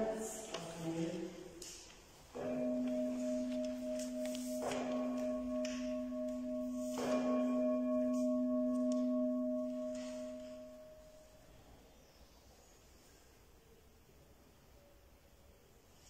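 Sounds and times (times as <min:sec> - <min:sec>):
low-pitched bell ringing: 0:02.4 - 0:11.5.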